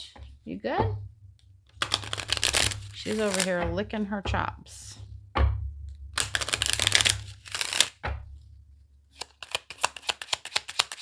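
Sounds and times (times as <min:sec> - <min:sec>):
cards being shuffled: 0:01.7 - 0:03.6, 0:06.2 - 0:08.0, 0:09.1 - 0:11.0.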